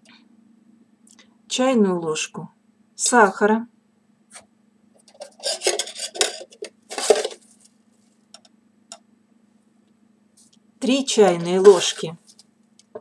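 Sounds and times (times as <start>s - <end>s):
spoon scraping porcelain: 5.1s - 7.4s, 11.2s - 12.2s.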